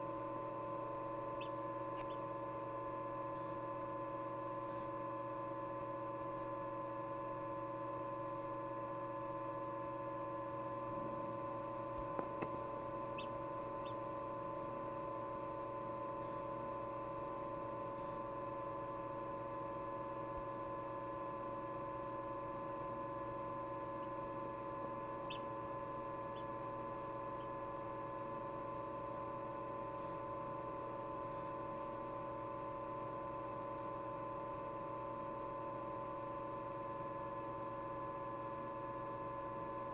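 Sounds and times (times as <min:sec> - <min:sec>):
incubator electrical hum: 0:00.0 - 0:39.9
chick peeping: 0:01.4 - 0:02.3, 0:13.1 - 0:14.0, 0:25.2 - 0:25.5.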